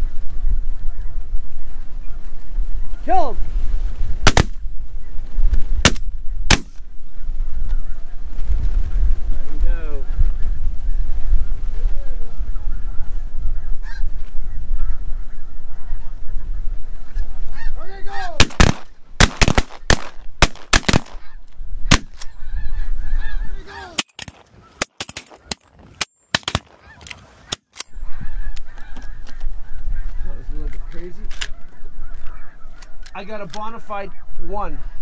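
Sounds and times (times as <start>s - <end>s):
wind rumble on microphone: 0.0s - 23.8s, 27.9s - 35.0s
shotgun shots: 4.2s - 4.6s, 5.8s - 6.8s, 18.4s - 21.3s, 21.9s - 22.3s
geese calling: 6.3s - 8.4s, 9.9s - 35.0s.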